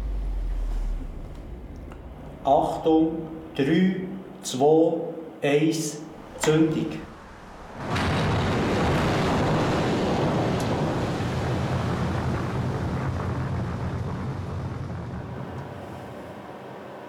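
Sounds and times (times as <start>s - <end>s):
flares burning with steady rush: 6.2s - 16.7s.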